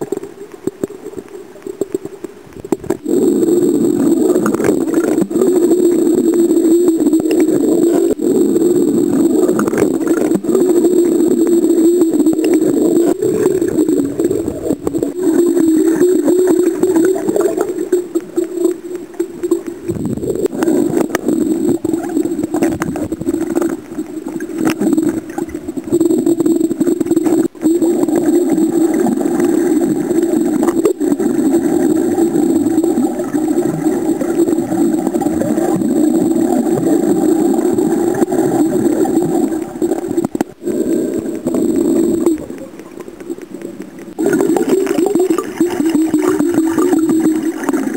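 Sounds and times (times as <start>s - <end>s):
knocks and clicks underwater: 0.0s - 47.9s
low underwater hum: 0.0s - 47.9s.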